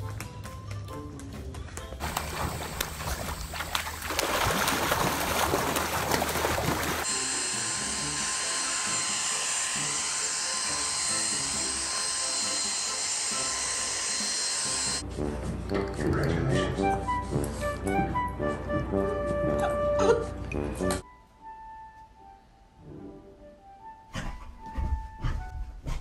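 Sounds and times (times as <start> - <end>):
faint background music: 0.0 - 4.4, 14.6 - 26.0
water splashing and rushing: 2.0 - 7.1
vacuum cleaner whine: 7.0 - 15.0.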